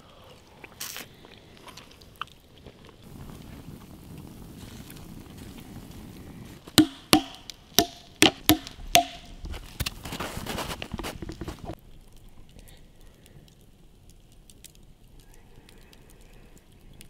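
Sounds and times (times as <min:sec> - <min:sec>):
wood crackling: 0:00.0 - 0:17.0
axe chopping wood: 0:06.7 - 0:09.6.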